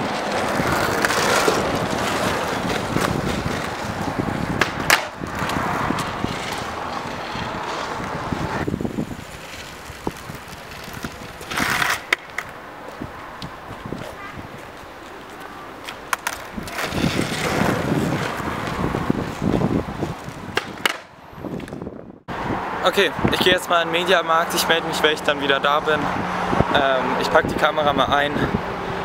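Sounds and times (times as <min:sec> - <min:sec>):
skateboard sharp clacks: 0:00.0 - 0:03.9, 0:04.5 - 0:08.5, 0:10.4 - 0:12.6, 0:13.4 - 0:18.8, 0:20.2 - 0:21.8
skateboard scraping: 0:00.0 - 0:21.9
skateboard wheels rolling on concrete: 0:00.0 - 0:29.0.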